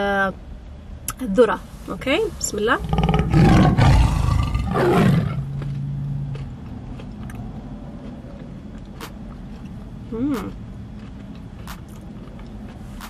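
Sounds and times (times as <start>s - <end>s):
eating sounds: 2.8s - 13.0s
woman humming while chewing: 10.1s - 10.6s.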